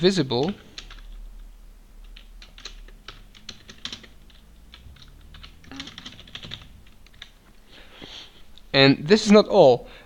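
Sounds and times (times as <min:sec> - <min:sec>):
keyboard typing: 0:00.4 - 0:07.5.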